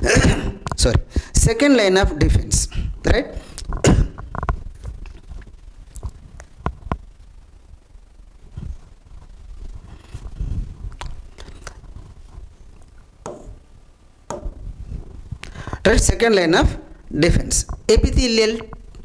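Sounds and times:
microphone handling noise: 0.0 - 7.2, 8.4 - 13.7, 14.3 - 19.0.

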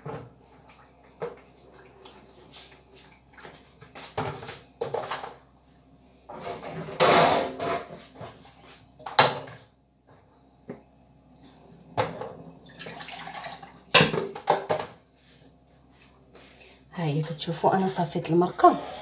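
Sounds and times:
liquid pouring through a strainer: 12.6 - 13.8.

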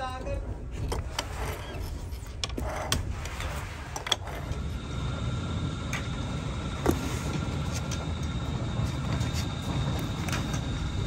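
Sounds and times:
workshop machinery rumble: 2.6 - 11.0
faint steady whine: 3.5 - 11.0.

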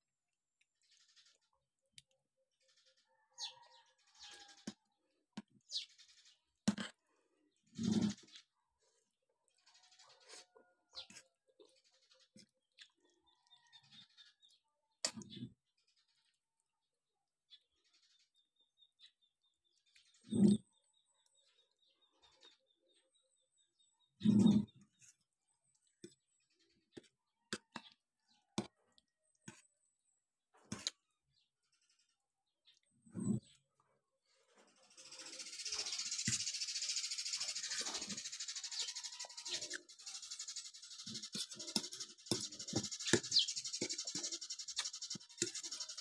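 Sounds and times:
faint high-pitched chirping: 2.6 - 4.9, 34.4 - 46.0.

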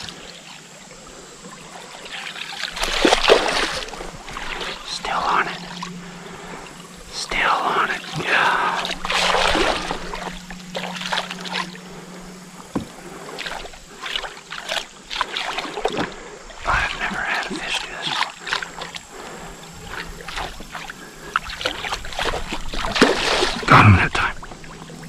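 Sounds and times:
water sloshing and splashing: 0.0 - 25.0
sharp knocks: 12.7 - 13.0.

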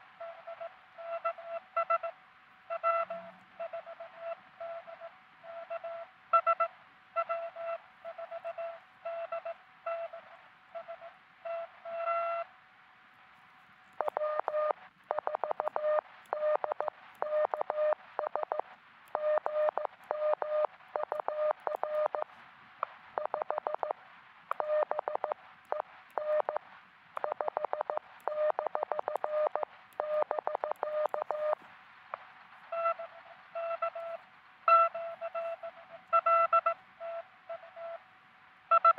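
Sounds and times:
high morse code tone: 14.0 - 22.3, 24.5 - 26.6, 27.2 - 31.6, 32.7 - 38.0
lower fast morse code tone: 14.0 - 22.3, 23.2 - 31.6, 32.7 - 38.0.

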